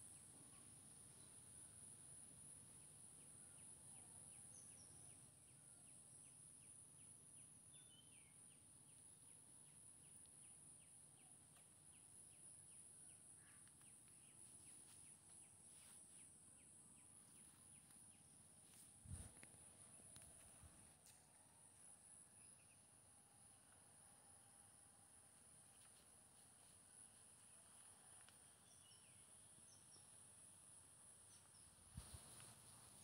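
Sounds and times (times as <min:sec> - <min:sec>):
steady high hiss: 0:25.2 - 0:33.0.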